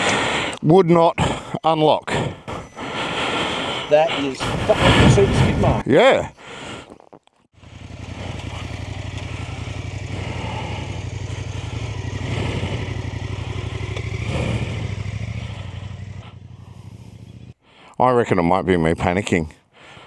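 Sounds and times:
motorcycle engine running: 7.6 - 17.6.

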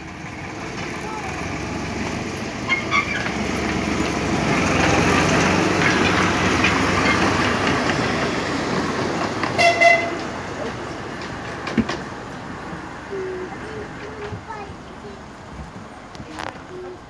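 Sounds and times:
small locomotive diesel engine: 0.0 - 17.0
wheel clicks over rail joints: 0.1 - 12.8.

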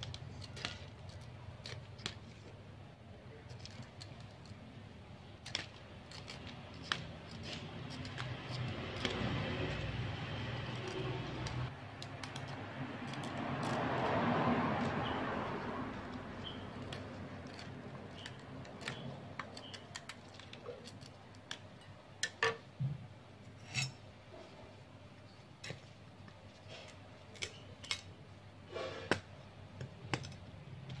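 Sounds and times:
knife scraping pumpkin rind: 5.4 - 21.2.

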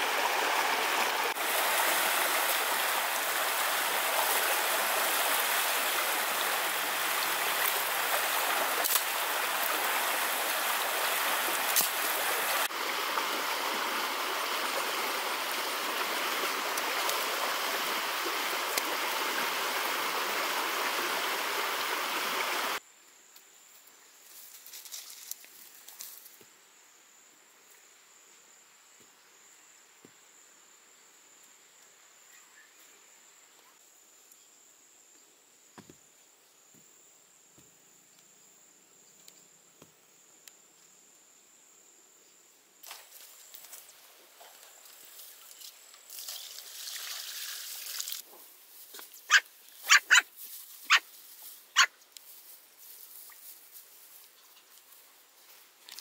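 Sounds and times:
stream water rushing over rocks: 0.0 - 22.8
grass rustling: 24.2 - 26.4, 42.9 - 56.0.

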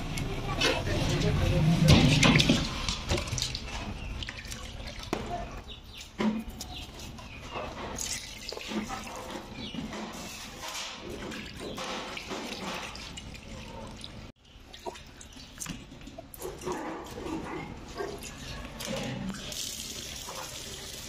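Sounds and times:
water sloshing and splashing: 0.7 - 20.8
water dripping: 2.3 - 5.2, 11.3 - 16.4.

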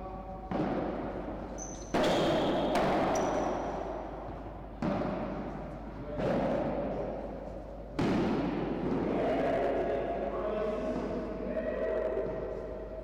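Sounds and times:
rackets hitting ball: 0.0 - 9.4
ball bouncing off walls: 0.5 - 5.6
short high squeaks: 1.6 - 2.3.

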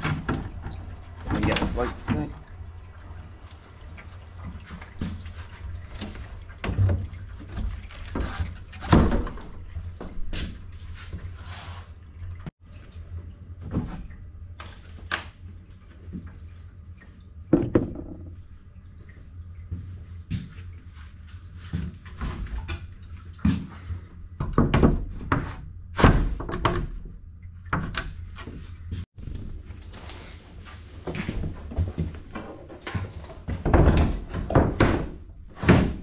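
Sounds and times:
panels knocking and clunking: 17.5 - 18.4, 24.4 - 28.6, 31.1 - 36.0.

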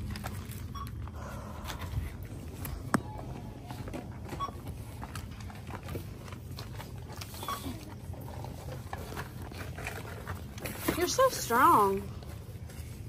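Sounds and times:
register scanner beeps: 3.0 - 5.0, 7.3 - 7.9.

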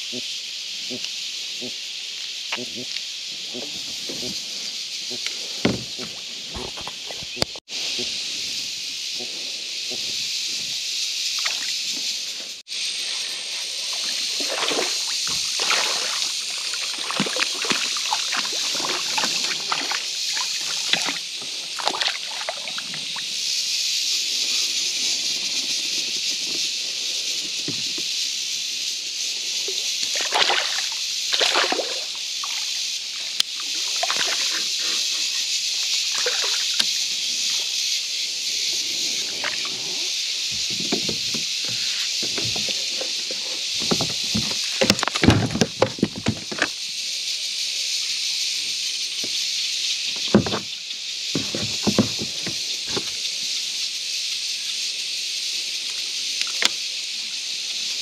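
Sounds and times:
steady high hiss: 0.0 - 6.5, 7.4 - 17.1, 20.0 - 45.3, 46.7 - 51.3, 52.3 - 58.0
sharp knocks: 5.6 - 6.8
fish splashing in water: 13.0 - 22.8, 30.0 - 32.8, 33.6 - 34.8, 36.1 - 36.9.

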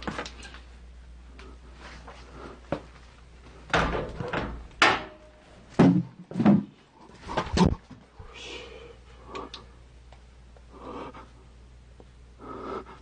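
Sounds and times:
knocks and thumps: 3.7 - 7.8.

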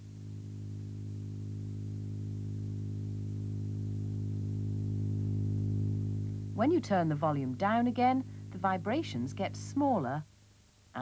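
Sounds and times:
low tone from loudspeaker: 6.3 - 10.2.

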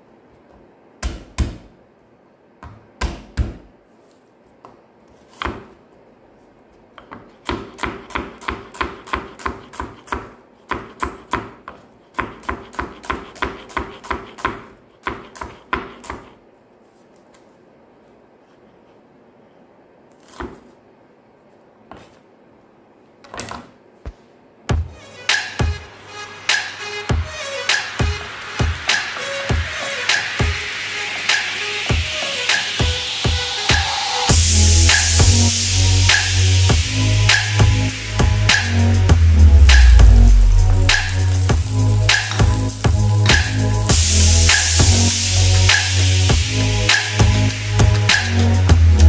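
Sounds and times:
knife chopping on wooden board: 7.0 - 16.3.

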